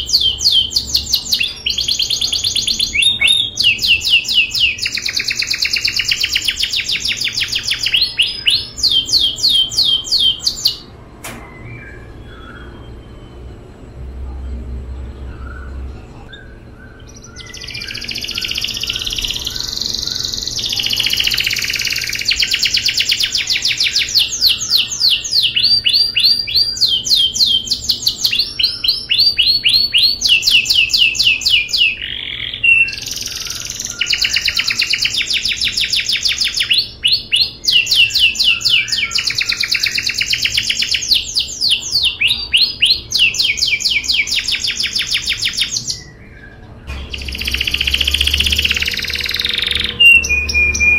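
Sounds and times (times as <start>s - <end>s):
canary singing trills: 0.0s - 50.9s.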